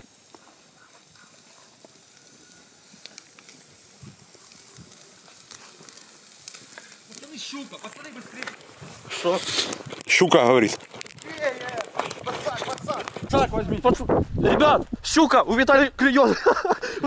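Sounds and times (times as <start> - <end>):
meat sizzling on a grill: 0.0 - 13.5.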